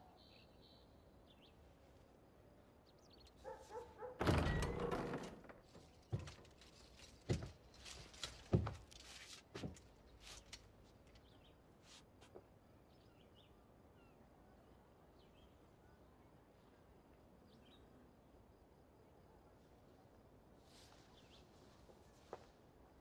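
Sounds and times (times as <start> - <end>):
faint birdsong: 0.0 - 8.9, 9.5 - 23.0
heavy door creaking and thudding: 4.2 - 6.4
slow heavy footsteps: 5.6 - 10.6.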